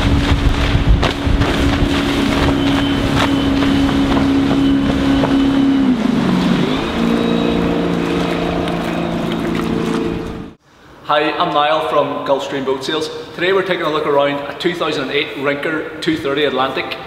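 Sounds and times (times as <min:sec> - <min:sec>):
boat engine drone: 0:00.0 - 0:10.6.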